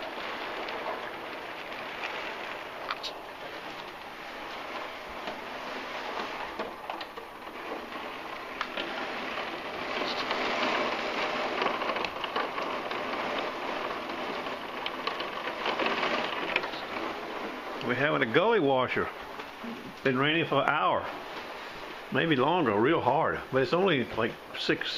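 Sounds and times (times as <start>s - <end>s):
heavy rain pouring: 0.0s - 24.9s.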